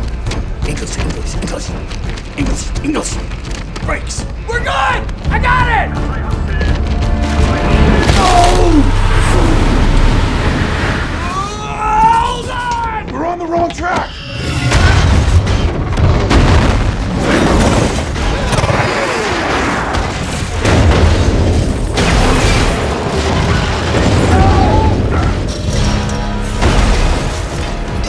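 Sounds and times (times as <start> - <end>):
heavy booms: 14.7 - 18.6.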